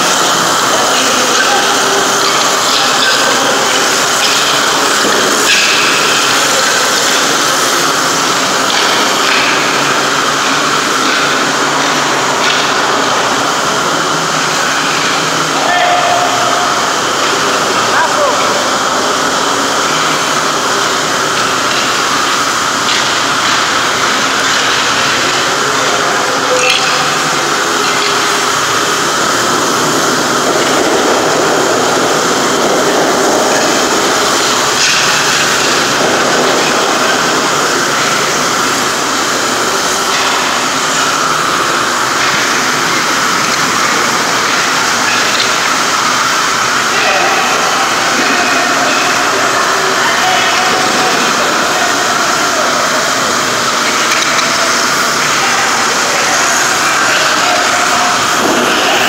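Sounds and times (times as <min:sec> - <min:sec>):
machine motor drone: 0:00.0 - 0:59.0.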